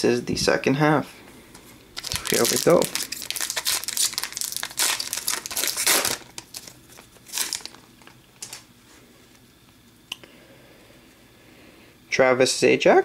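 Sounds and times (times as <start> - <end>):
foil wrapper tearing and crinkling: 2.0 - 8.7.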